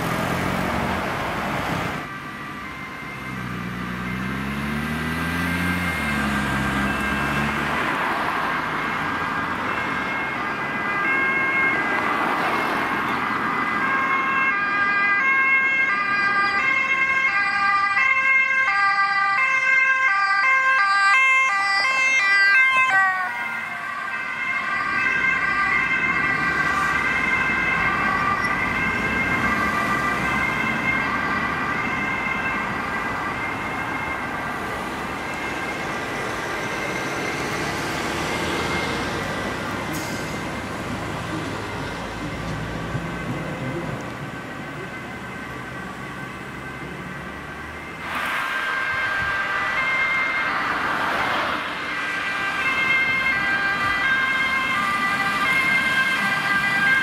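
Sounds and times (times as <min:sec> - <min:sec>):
car engine: 0:00.0 - 0:10.8
road traffic: 0:00.0 - 0:57.0
two-tone ambulance siren: 0:00.0 - 0:57.0.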